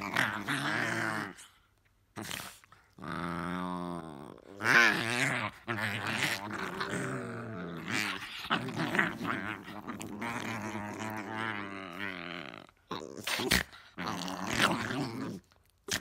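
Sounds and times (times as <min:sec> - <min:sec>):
dogs growling: 0:00.0 - 0:16.0.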